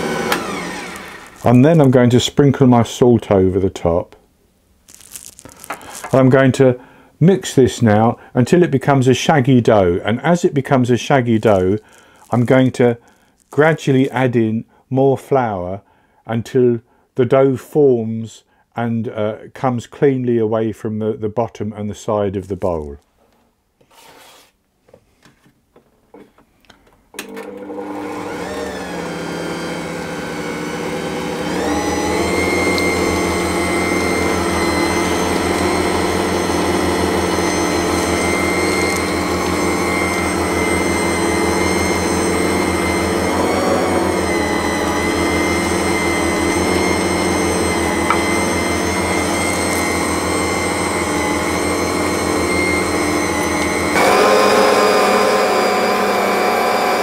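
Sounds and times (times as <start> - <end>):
stand mixer motor running: 0.0 - 1.4, 27.5 - 57.0.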